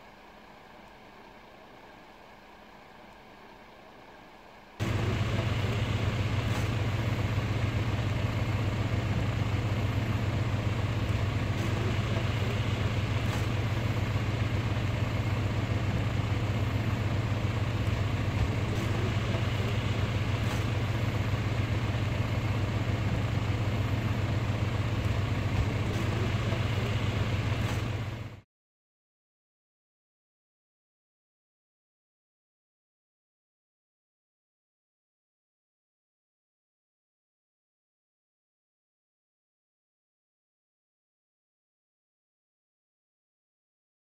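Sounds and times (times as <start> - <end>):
motor running steadily: 0.0 - 28.4.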